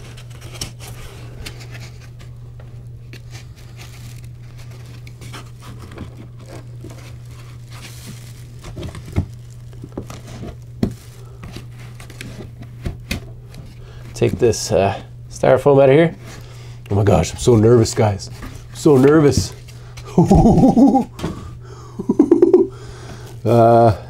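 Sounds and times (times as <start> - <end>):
plastic wrap crinkling: 0.0 - 12.6.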